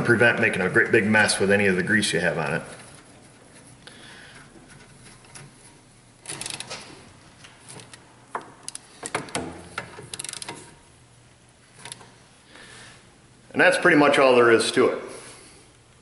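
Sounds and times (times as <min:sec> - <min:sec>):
metal clicks and rattles: 0:04.4 - 0:10.8, 0:11.7 - 0:12.2
rapid ratchet ticks: 0:10.1 - 0:10.6.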